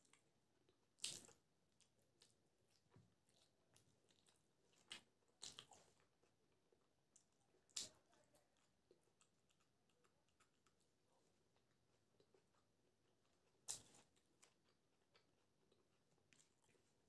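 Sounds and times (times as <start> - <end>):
close-miked chewing: 0.0 - 17.0
sharp crunches of chillies: 1.0 - 1.4.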